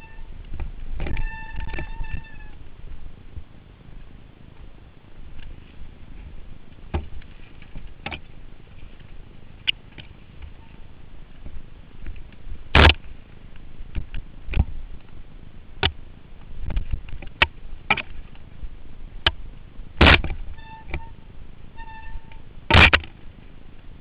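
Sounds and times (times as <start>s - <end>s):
brakes squealing: 0.0s - 24.0s
bike knocking and rattling on rocks: 6.2s - 10.8s, 19.2s - 21.2s.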